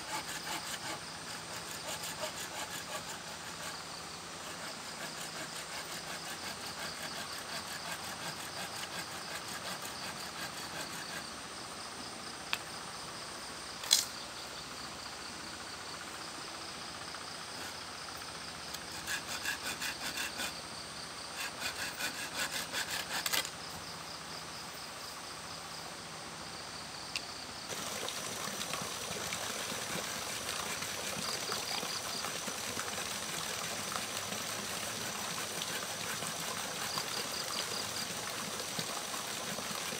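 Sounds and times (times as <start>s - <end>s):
insects chirping: 0.0s - 39.7s
flowing water rushing: 27.7s - 39.9s.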